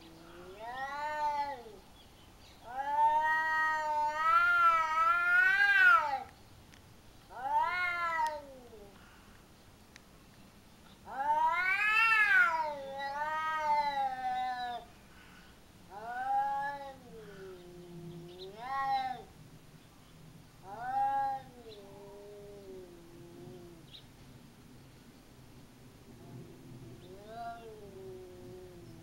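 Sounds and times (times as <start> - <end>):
cats yowling: 0.0 - 1.8, 2.6 - 6.3, 7.3 - 8.9, 11.1 - 14.9, 15.9 - 19.3, 20.6 - 23.9, 27.0 - 29.0.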